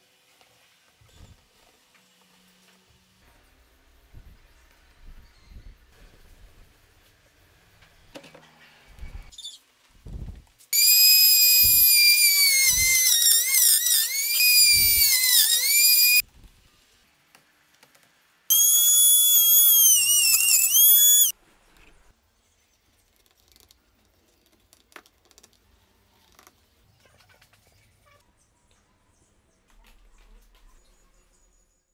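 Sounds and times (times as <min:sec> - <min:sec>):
power drill whining into wood: 0:10.8 - 0:16.2, 0:18.5 - 0:21.3.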